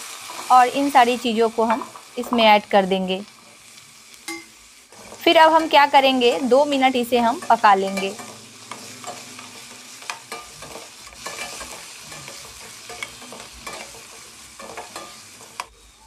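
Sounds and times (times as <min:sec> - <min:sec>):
vegetables sizzling in oil: 0:00.0 - 0:16.0
spoon scraping and tapping pot: 0:07.5 - 0:15.7.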